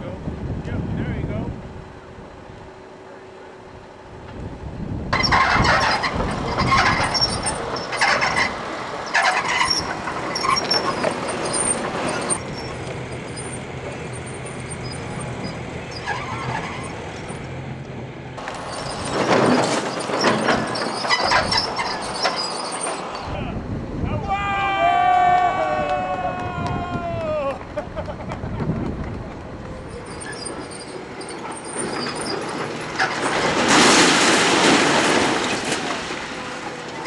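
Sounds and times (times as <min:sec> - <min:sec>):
diesel engine running: 0:00.1 - 0:24.0, 0:27.4 - 0:37.0
excavator bucket crashing into wall: 0:33.0 - 0:36.4.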